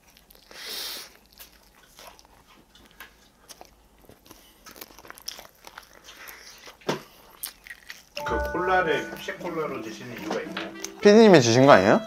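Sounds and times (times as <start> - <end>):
chewing mouth clicks: 0.0 - 8.2
crunching fried chicken: 0.0 - 8.2.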